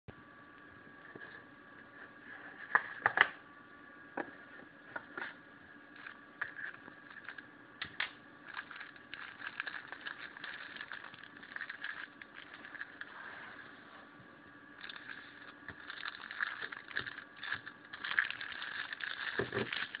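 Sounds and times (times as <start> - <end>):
faint steady hum: 0.1 - 20.0
plastic bag crinkling: 5.9 - 13.2, 14.8 - 20.0.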